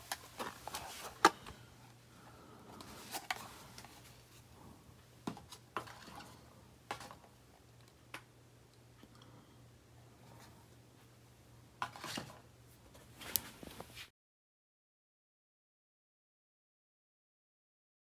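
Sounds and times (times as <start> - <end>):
faint steady hum: 0.0 - 14.1.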